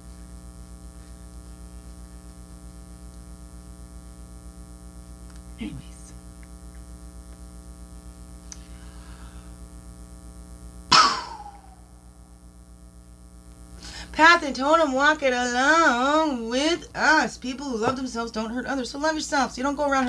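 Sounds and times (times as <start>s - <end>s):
electrical mains hum: 0.0s - 20.0s
short falling vocal sound: 10.9s - 12.0s.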